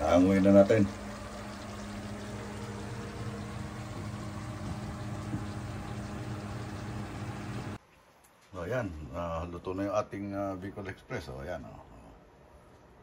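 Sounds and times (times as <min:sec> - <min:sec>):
food simmering in a frying pan: 0:00.0 - 0:07.8
low electric hum: 0:00.0 - 0:07.8.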